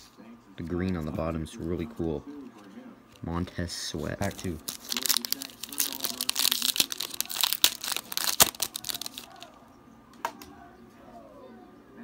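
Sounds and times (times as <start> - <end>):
wrapper tearing and crinkling: 4.2 - 9.6.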